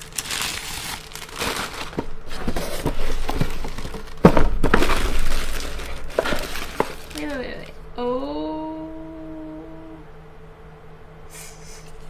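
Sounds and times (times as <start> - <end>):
packaging rustling in cardboard box: 0.0 - 7.6.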